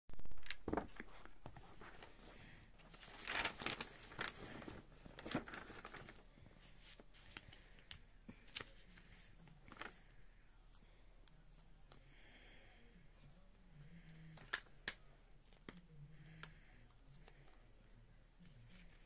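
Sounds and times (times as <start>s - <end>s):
paper rustling and crinkling: 0.4s - 10.2s.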